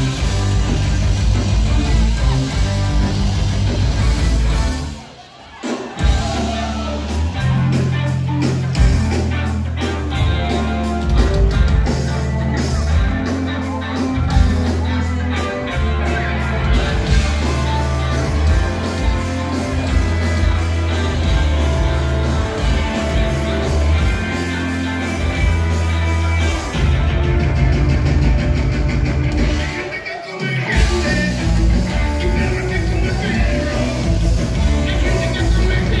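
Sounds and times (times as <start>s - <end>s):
electric guitar: 0.0s - 5.0s, 6.0s - 36.0s
heavy bass line: 0.0s - 5.0s, 6.0s - 30.0s, 30.7s - 36.0s
person singing: 29.5s - 36.0s.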